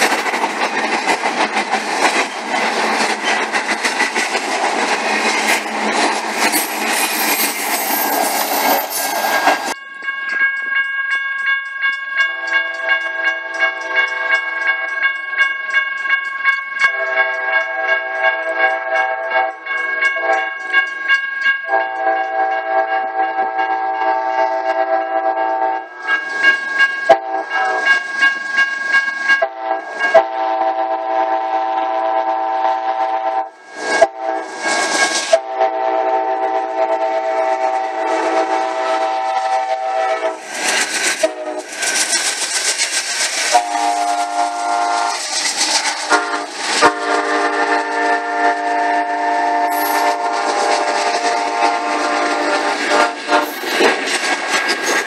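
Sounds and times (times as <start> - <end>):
train wheels on rails: 0.0 - 55.0
train air horn blasts: 21.7 - 26.0, 27.1 - 28.0, 29.4 - 40.4, 41.2 - 41.7, 43.5 - 45.3, 46.0 - 53.6.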